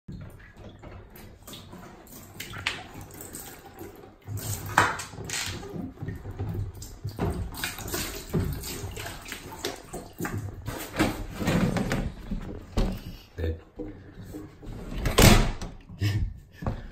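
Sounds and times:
water sloshing: 0.1 - 15.2
otter splashing in water: 0.3 - 10.6.

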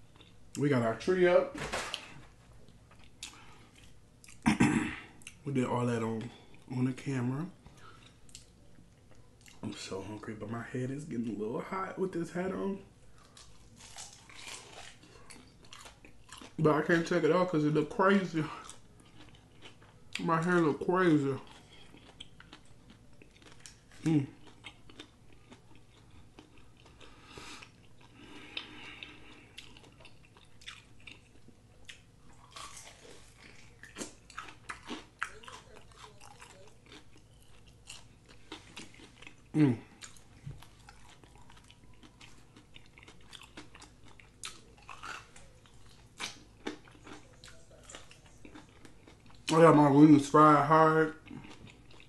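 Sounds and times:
crunchy biting and wet chewing: 13.2 - 17.1, 18.4 - 50.5, 51.1 - 52.0.

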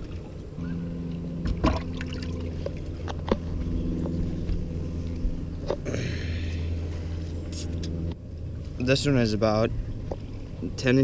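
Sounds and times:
low engine hum: 0.0 - 11.0
water sloshing in tub: 1.1 - 3.1
water splash: 1.4 - 2.5.

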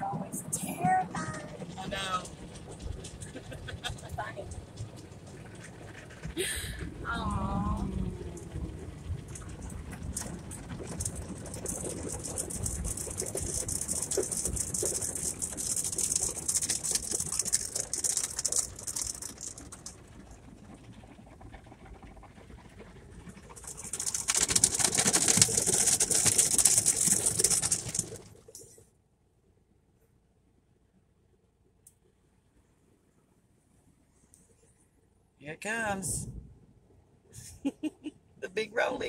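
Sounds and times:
car wash water spray and brushes: 0.1 - 7.1, 7.9 - 28.8.

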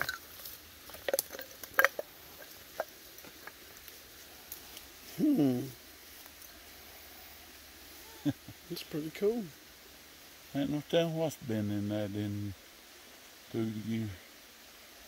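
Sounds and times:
man humming: 5.1 - 5.8.

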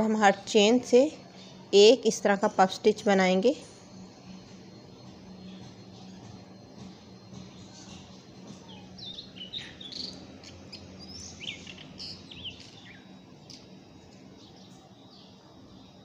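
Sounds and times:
steady low hum: 0.0 - 16.0
birds chirping: 4.9 - 16.0.

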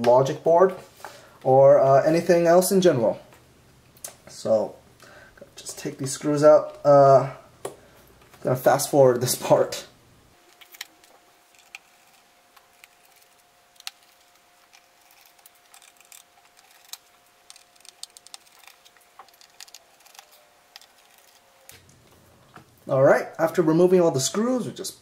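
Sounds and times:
faint steady hum: 0.0 - 25.0.

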